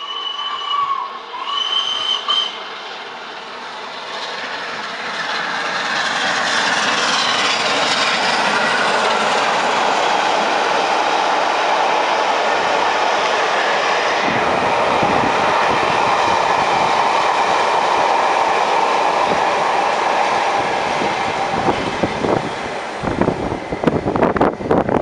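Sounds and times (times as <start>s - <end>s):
steam locomotive whistle: 0.0s - 2.7s
train rushing past on rails: 0.0s - 25.0s.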